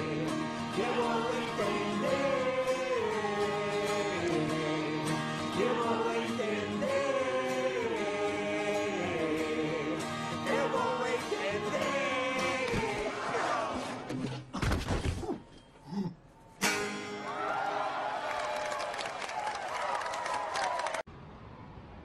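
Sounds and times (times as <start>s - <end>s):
man singing slow melody: 0.0s - 12.7s.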